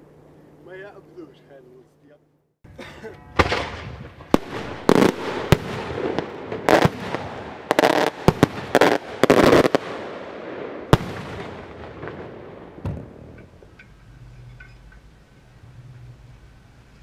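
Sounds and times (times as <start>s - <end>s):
firework shell bursting with cracks: 3.4s - 10.0s.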